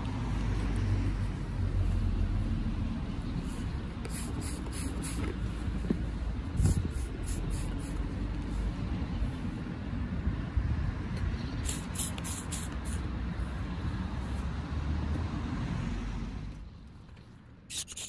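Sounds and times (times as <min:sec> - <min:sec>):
spray bottle squirting: 0:04.0 - 0:05.4, 0:06.6 - 0:08.1, 0:11.6 - 0:13.0, 0:17.7 - 0:18.0.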